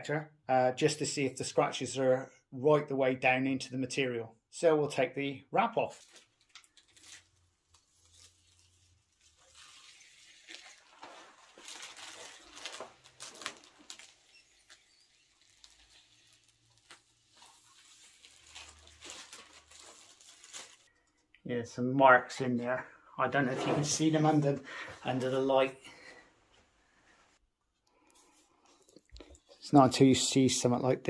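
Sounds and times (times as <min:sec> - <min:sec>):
plastic film crinkling: 0:05.9 - 0:21.2.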